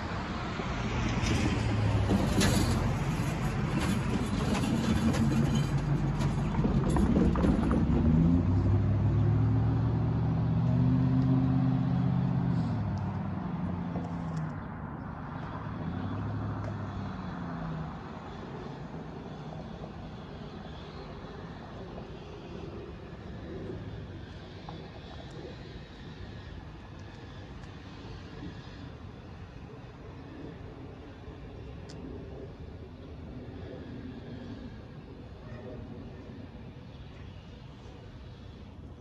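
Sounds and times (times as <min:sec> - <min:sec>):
road traffic passing: 0:00.0 - 0:39.0.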